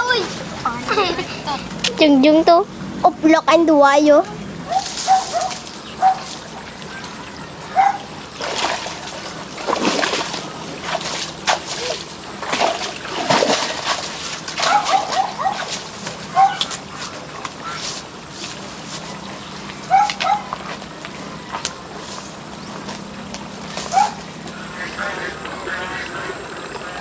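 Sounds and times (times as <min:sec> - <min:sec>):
buffalo splashing in muddy water: 0:07.8 - 0:27.0.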